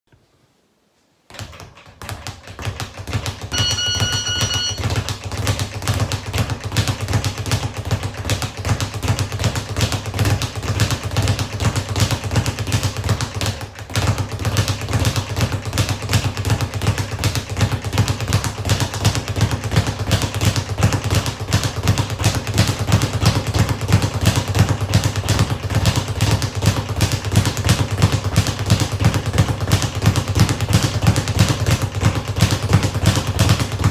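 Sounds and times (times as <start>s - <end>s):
speed bag being punched: 1.3s - 33.9s
short beep: 3.5s - 5.0s.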